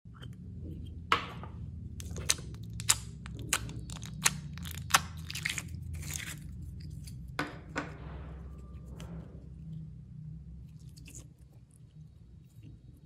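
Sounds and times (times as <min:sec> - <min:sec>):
slime popping and crackling: 0:02.0 - 0:06.4.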